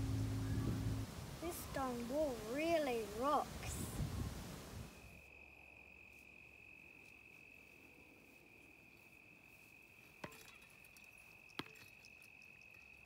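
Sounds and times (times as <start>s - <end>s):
crickets trilling: 4.9s - 13.0s.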